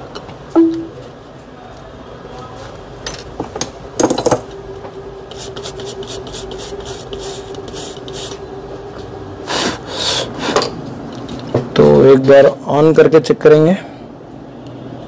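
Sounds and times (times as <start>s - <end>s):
small tool scrubbing rasping: 5.3s - 8.4s.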